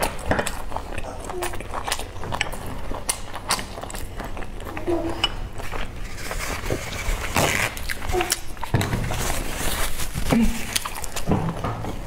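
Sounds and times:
chewing with wet mouth sounds: 0:00.0 - 0:12.0
tissue rustling: 0:09.1 - 0:10.8.

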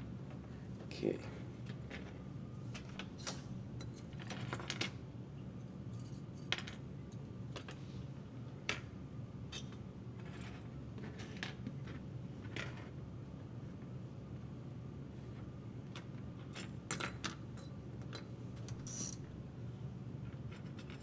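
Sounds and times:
steady low hum: 0:00.0 - 0:10.9.

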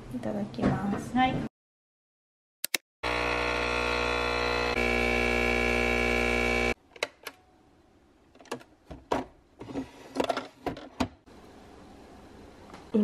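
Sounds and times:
espresso machine pump buzzing: 0:03.0 - 0:06.8.

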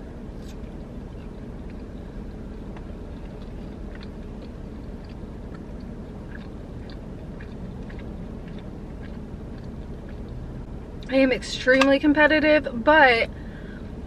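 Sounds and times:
steady low hum: 0:00.0 - 0:14.0
chewing crunchy fried food: 0:00.4 - 0:10.7.

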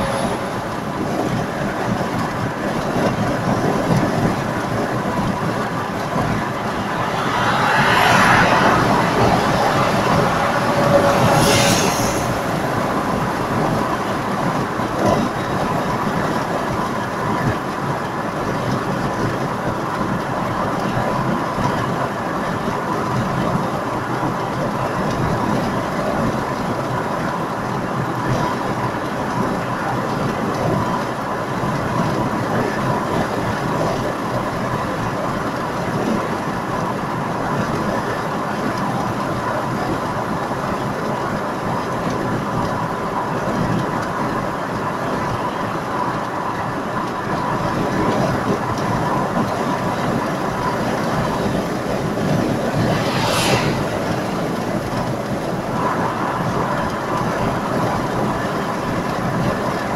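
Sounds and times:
engine hum: 0:00.0 - 0:59.9
tyre roar: 0:06.6 - 0:12.8
brief hiss: 0:52.6 - 0:54.6.

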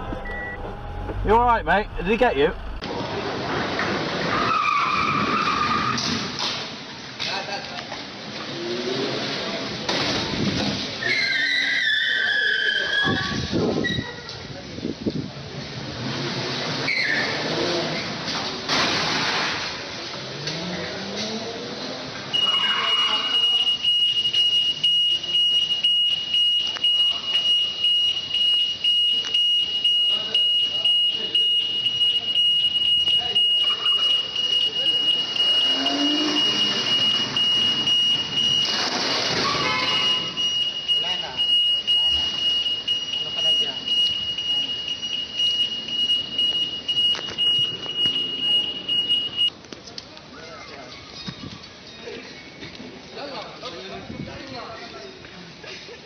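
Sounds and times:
electronic alarm beeping: 0:00.0 - 0:02.8, 0:22.3 - 0:49.5.

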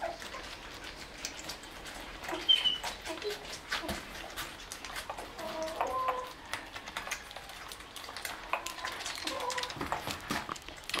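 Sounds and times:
puppies suckling wet clicks: 0:00.0 - 0:11.0
puppy squeaks: 0:02.3 - 0:04.0.

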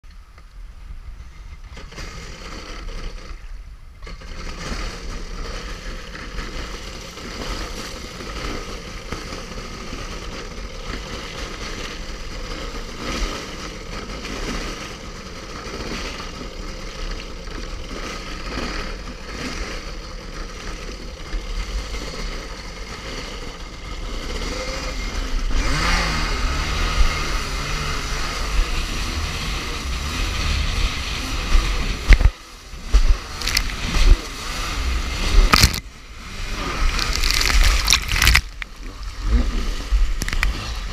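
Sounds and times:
jet ski engine revving: 0:04.0 - 0:40.9
water splashing against hull: 0:35.0 - 0:35.9, 0:36.8 - 0:40.9.

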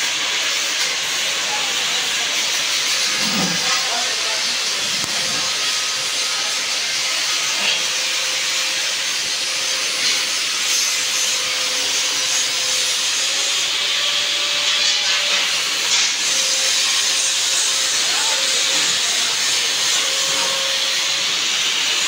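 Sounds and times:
angle grinder grinding metal: 0:00.0 - 0:22.0.

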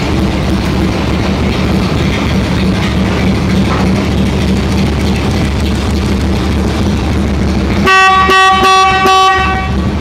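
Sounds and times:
motorcycle engine idling: 0:00.0 - 0:10.0
motorcycle horn honks: 0:07.8 - 0:09.8.

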